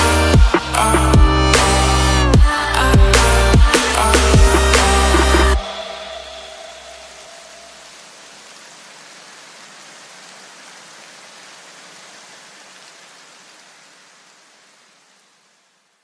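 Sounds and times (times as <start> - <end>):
deep bass music: 0.0 - 7.1
steady hiss: 1.6 - 16.0.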